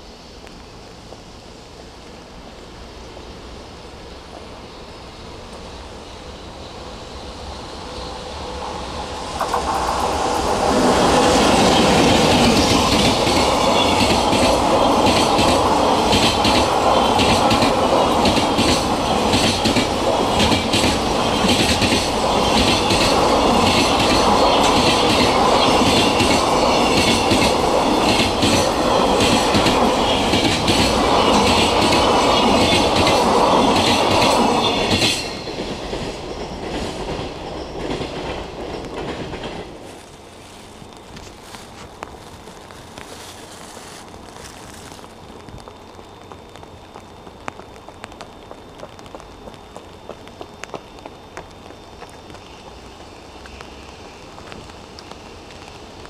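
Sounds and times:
freight train rumbling past: 0:00.0 - 0:56.0
wheels clattering over rail joints: 0:09.4 - 0:45.2.

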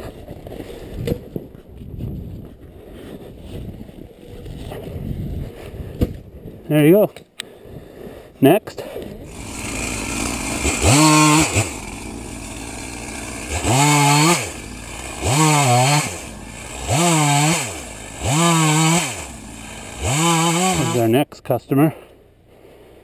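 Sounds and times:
chainsaw idling and revving: 0:09.2 - 0:21.2.

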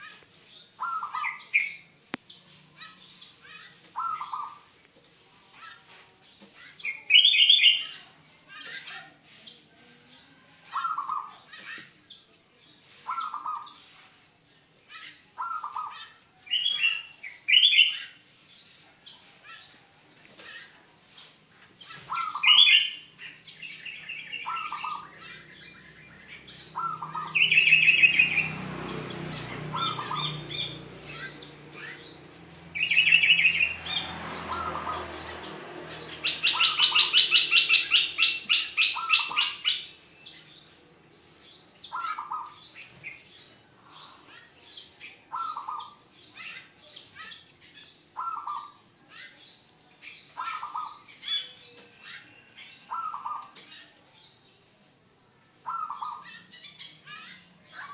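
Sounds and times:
dove cooing: 0:00.8 - 0:01.7, 0:03.9 - 0:04.6, 0:24.4 - 0:25.4, 0:26.6 - 0:32.1, 0:34.5 - 0:39.8, 0:41.9 - 0:42.6, 0:45.3 - 0:46.6, 0:48.2 - 0:48.8, 0:52.8 - 0:53.6, 0:55.6 - 0:56.3
high chirping trills: 0:21.1 - 0:49.4.

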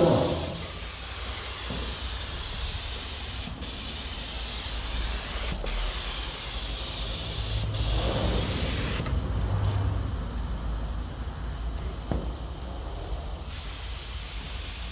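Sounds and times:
spray gun hissing: 0:00.0 - 0:09.1, 0:13.5 - 0:14.9.

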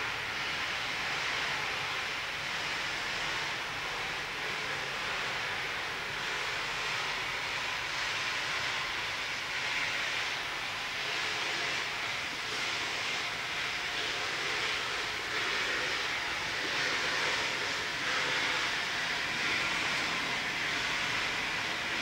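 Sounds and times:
steam locomotive venting steam: 0:00.0 - 0:22.0.

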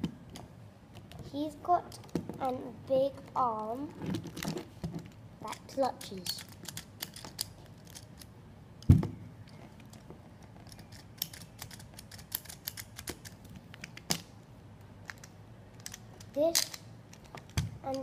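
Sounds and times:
plastic toy claw clicking: 0:05.5 - 0:08.3, 0:10.6 - 0:14.3, 0:15.0 - 0:18.0.

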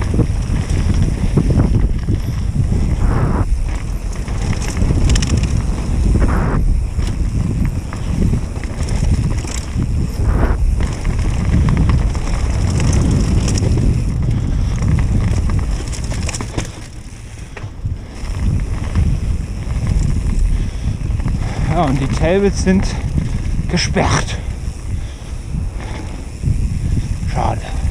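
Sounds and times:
bike tyre noise: 0:00.0 - 0:27.9
wind buffeting microphone: 0:00.0 - 0:27.9
bike knocking over bumps: 0:10.7 - 0:20.4.

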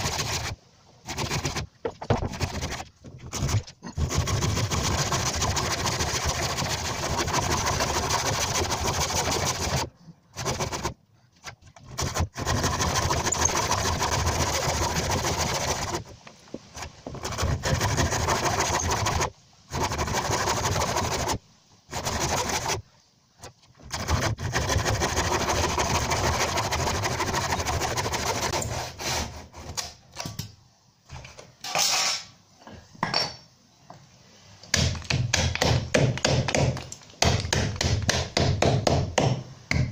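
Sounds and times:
hand saw cutting wood: 0:00.0 - 0:16.1, 0:16.7 - 0:22.8, 0:23.7 - 0:29.9.

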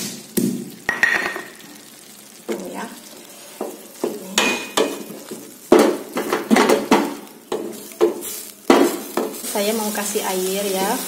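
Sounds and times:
light sizzle: 0:00.0 - 0:11.0
wooden spatula scraping a pan: 0:03.2 - 0:11.0
spatula knocking against pan: 0:03.6 - 0:09.4.

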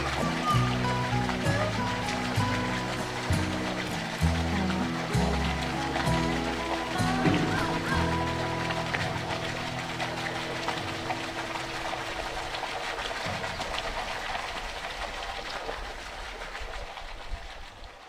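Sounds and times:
background music: 0:00.0 - 0:13.6
water pouring into pool: 0:00.0 - 0:18.0.

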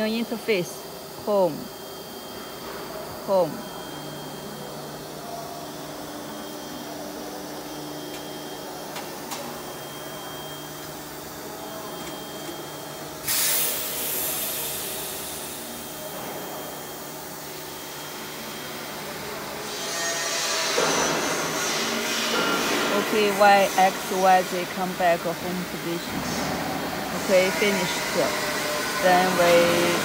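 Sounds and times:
milling machine motors humming: 0:00.0 - 0:30.0.

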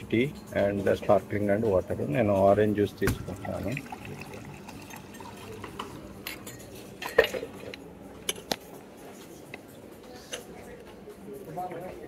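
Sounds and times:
glassware and crockery clinking: 0:03.2 - 0:08.5.

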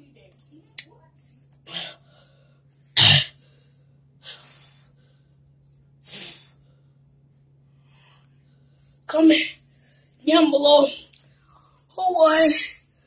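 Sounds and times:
faint low hum: 0:00.0 - 0:13.0
person coughing: 0:03.0 - 0:03.4
person breathing hard: 0:03.4 - 0:05.4.

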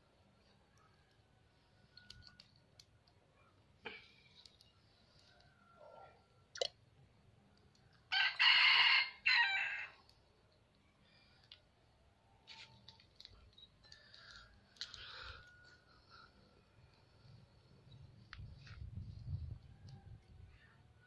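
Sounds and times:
rooster crowing: 0:08.1 - 0:10.0.

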